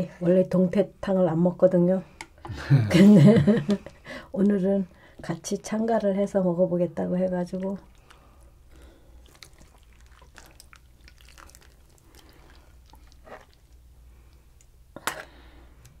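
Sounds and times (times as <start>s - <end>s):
broth dripping: 7.2s - 14.4s.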